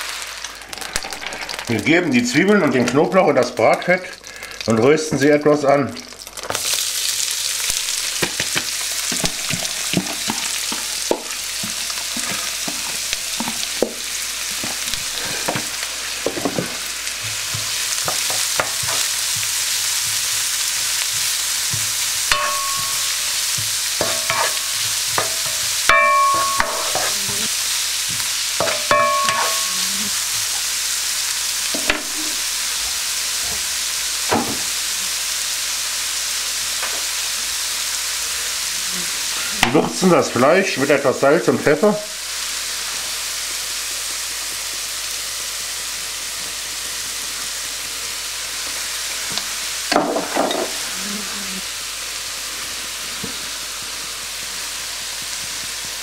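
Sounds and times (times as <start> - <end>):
onions sizzling in hot fat: 0.0 - 56.0
spoon scraping a wok: 14.6 - 30.7.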